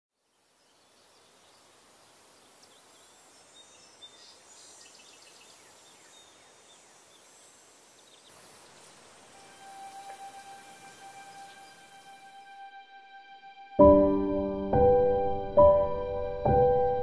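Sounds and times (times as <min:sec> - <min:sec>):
small birds chirping: 0:00.2 - 0:12.5
high insect buzz: 0:00.2 - 0:13.4
soft hiss: 0:00.2 - 0:13.7.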